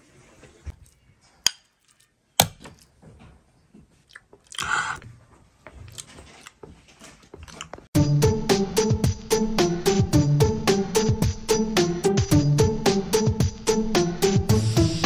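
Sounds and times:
chewing greens: 0.7s - 3.0s, 3.7s - 7.9s
noisy mouthful: 4.1s - 5.0s.

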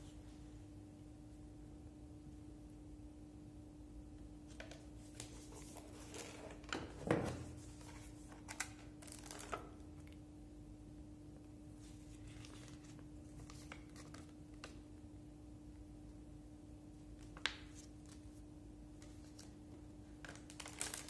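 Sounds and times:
faint steady hum: 0.0s - 21.0s
paper rustling: 4.5s - 9.7s, 11.8s - 14.8s.

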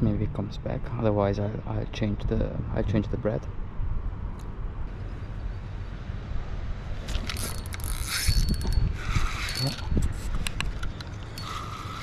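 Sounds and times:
fishing reel ratcheting: 7.1s - 10.0s, 10.8s - 12.0s.

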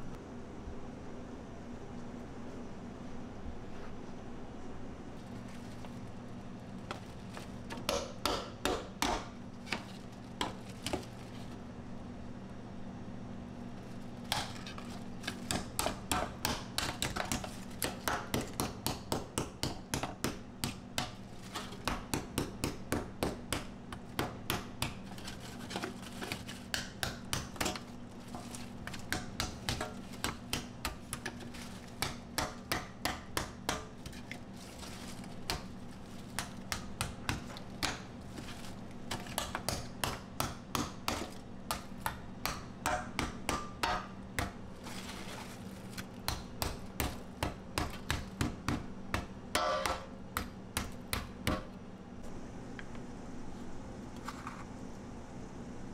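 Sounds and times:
steady low hum: 0.0s - 55.9s
candy cracking in steel tray: 23.6s - 48.7s.

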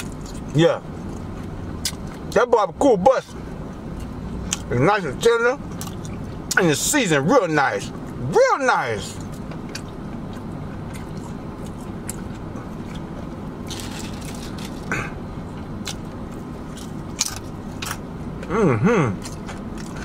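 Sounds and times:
car interior hum: 0.0s - 20.0s
chips crunching while chewed: 9.1s - 15.1s, 19.2s - 20.0s
person humming with enjoyment: 18.5s - 19.2s.

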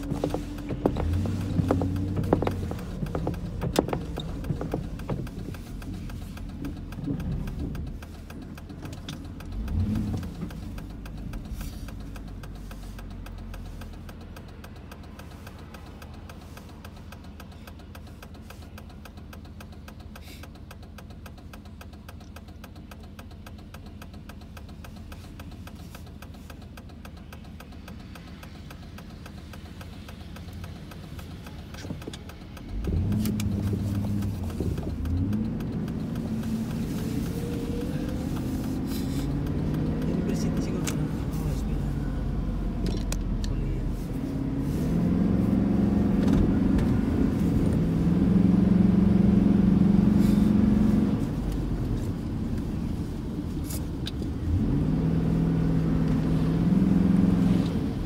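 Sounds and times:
soft thumps: 0.0s - 7.8s
car engine idling: 0.0s - 58.0s.

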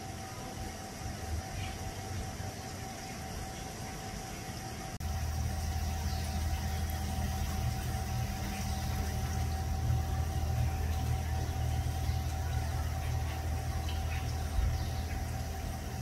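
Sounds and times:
engine idling hum: 4.9s - 16.0s.

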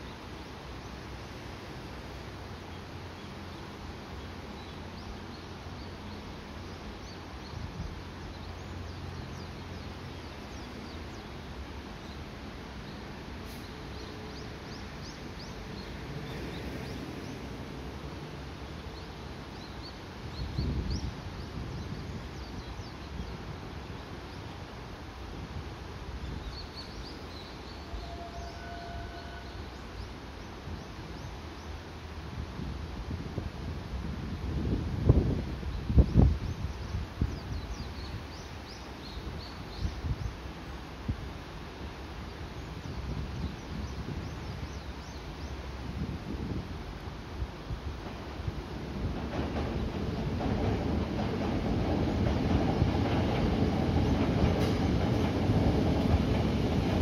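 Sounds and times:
distant road traffic rumble: 0.0s - 57.0s.

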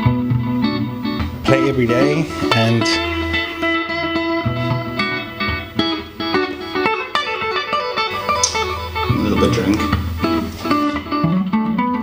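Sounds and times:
clean electric guitar playing: 0.0s - 12.0s.

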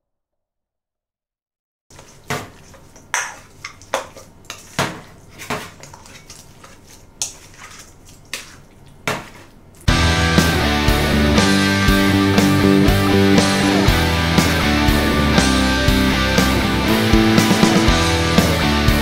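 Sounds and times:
rustling of food: 1.9s - 9.9s.

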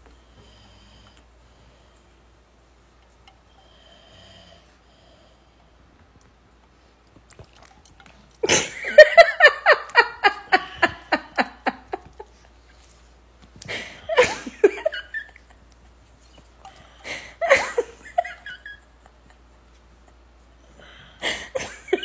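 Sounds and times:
person laughing: 8.4s - 12.5s, 13.7s - 15.7s, 17.1s - 20.2s, 21.2s - 22.0s.

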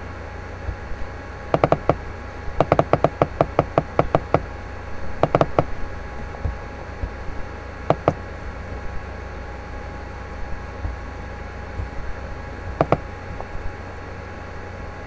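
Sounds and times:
steady low hum: 0.0s - 15.0s
sharp hollow clicking taps: 1.5s - 2.0s, 2.6s - 4.5s, 5.2s - 5.7s, 7.9s - 8.2s, 12.7s - 13.5s.

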